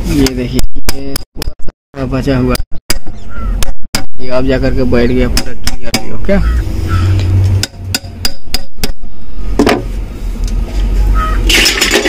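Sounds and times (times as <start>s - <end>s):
metal knocks on housing: 9.6s - 9.9s.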